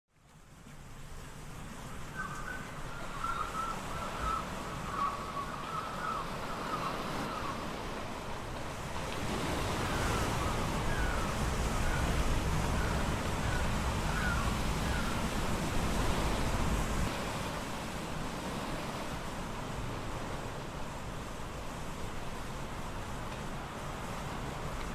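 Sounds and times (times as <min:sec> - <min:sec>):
wind: 0:00.1 - 0:24.9
surf washing against rocks: 0:00.4 - 0:24.9
chirping bird calls: 0:02.2 - 0:07.6, 0:09.8 - 0:15.3.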